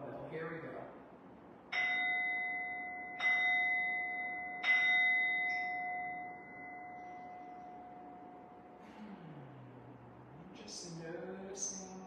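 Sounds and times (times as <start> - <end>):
singing bowl struck with mallet: 1.8 - 8.6.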